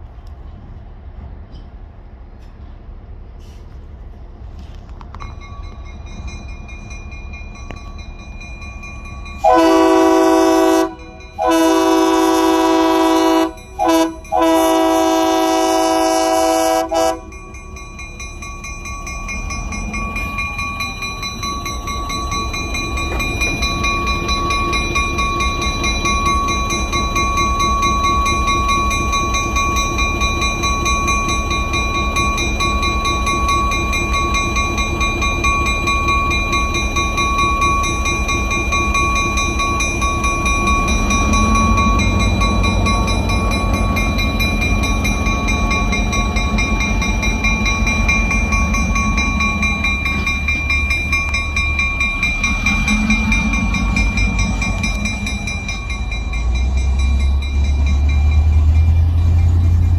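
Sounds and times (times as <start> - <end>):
diesel engine rumbling: 0.0 - 59.9
locomotive air horn blasts: 9.4 - 17.3.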